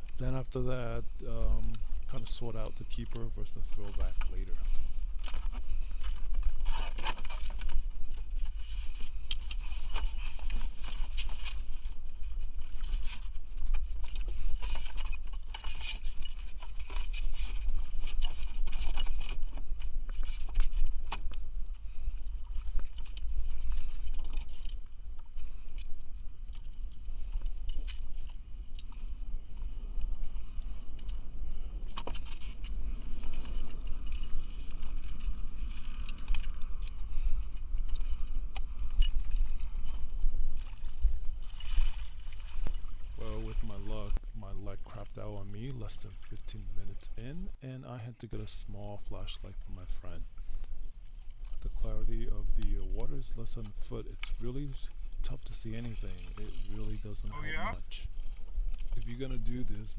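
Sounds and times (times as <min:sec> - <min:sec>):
water sloshing and splashing: 0:39.0 - 0:44.2, 0:55.9 - 0:57.0.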